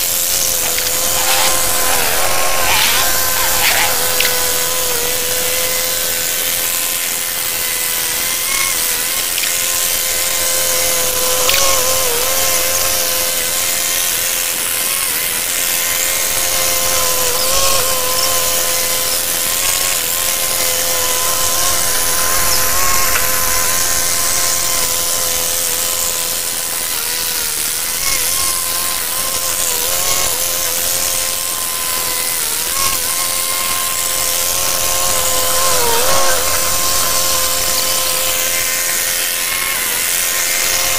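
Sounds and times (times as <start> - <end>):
mechanical whine: 0.0 - 7.4, 17.1 - 40.9.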